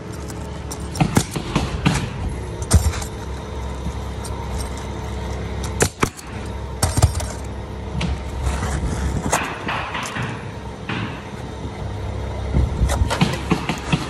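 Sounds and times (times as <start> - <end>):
steady low rumble: 0.0 - 14.0
knocks from roofing work: 12.6 - 14.0.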